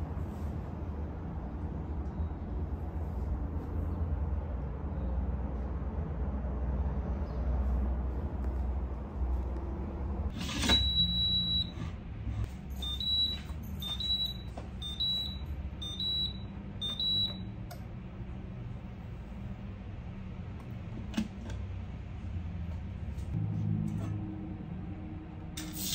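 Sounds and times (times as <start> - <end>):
cooking alarm beeping: 10.4 - 11.9, 12.5 - 17.6.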